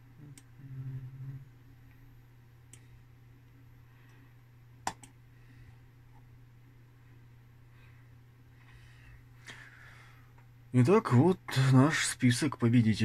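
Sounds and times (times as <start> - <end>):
steady low hum: 0.0 - 13.0
computer mouse clicking: 4.8 - 5.2.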